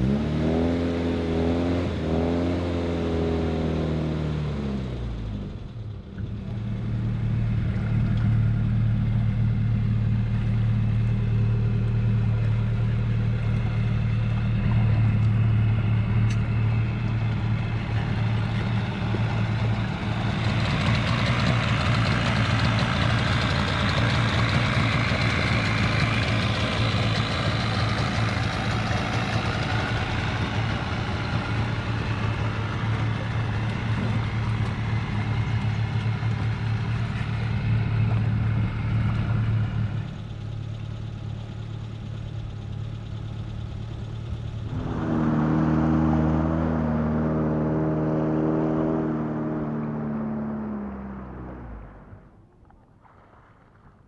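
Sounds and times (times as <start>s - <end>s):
outboard motor idling: 5.6s - 44.7s.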